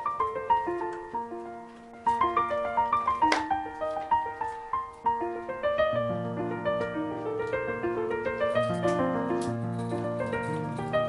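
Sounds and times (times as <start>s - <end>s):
light keyboard melody: 0.0s - 11.0s.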